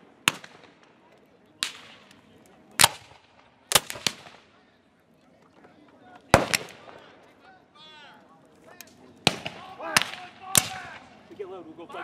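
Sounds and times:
musket shots with echo: 0.2 - 0.9, 2.8 - 4.5, 6.3 - 7.0, 9.2 - 11.1.

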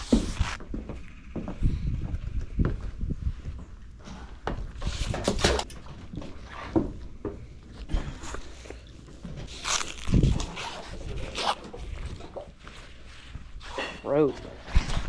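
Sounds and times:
rope rustling and scraping: 0.0 - 0.6, 8.0 - 15.0.

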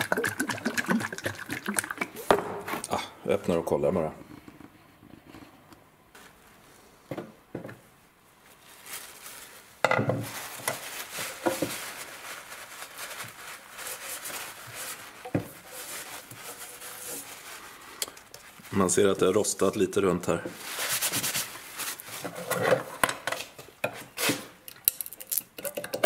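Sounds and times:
paper towel rubbing on tin lid: 12.1 - 17.9.

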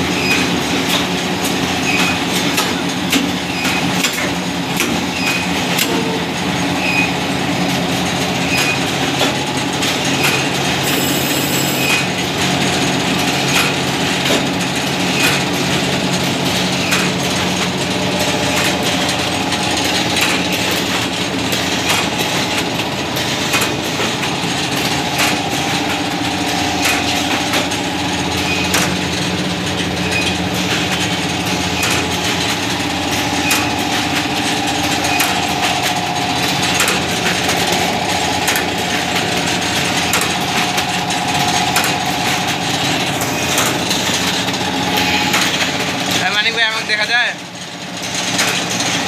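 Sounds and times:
printing machine hum and clatter: 0.0 - 49.0
sharp machine knock: 8.5 - 11.2, 13.2 - 46.4.

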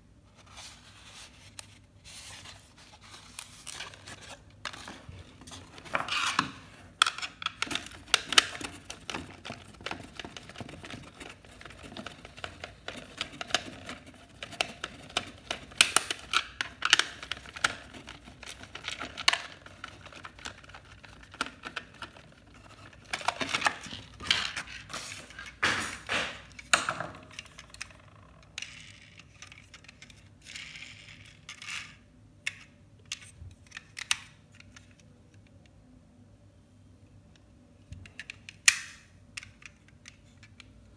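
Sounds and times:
plastic and cardboard handling: 0.3 - 28.0.

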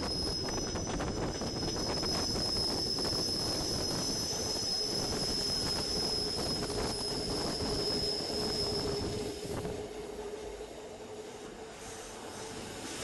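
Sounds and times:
train running gear rumble: 0.0 - 13.0
train wheels squealing: 0.0 - 13.0.

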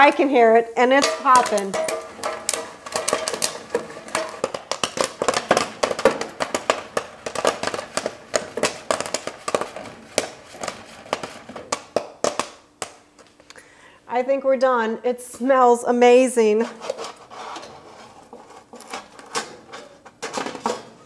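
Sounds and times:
popcorn popping in metal pot: 0.8 - 13.2.

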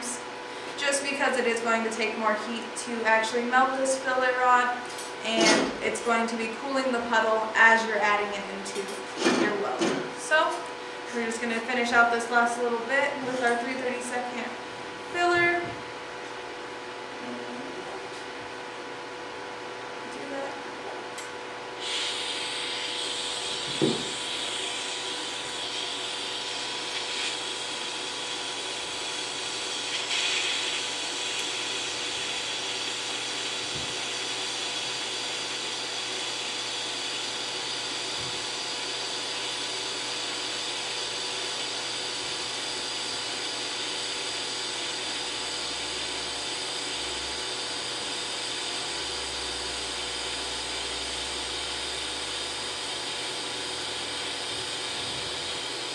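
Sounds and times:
welding arc hiss and buzz: 21.8 - 55.9.

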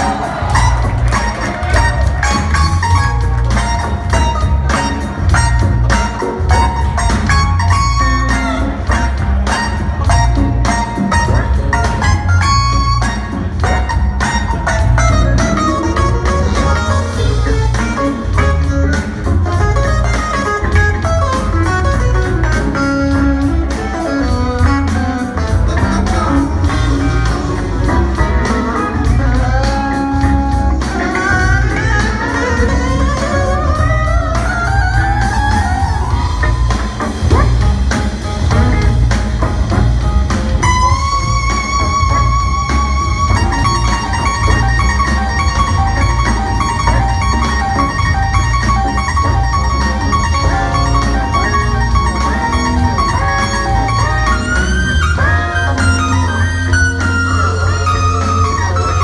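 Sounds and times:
jazz-funk band playing: 0.0 - 59.0.

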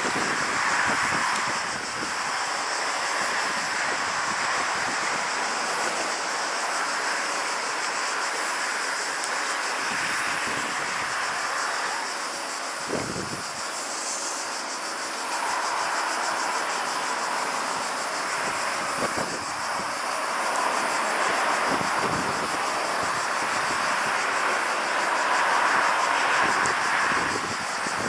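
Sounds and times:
distant jet engine noise: 0.0 - 28.0.

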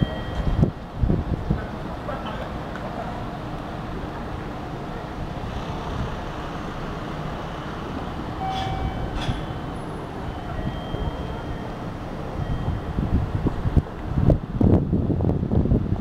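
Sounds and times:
diesel railcar idling: 0.0 - 16.0.

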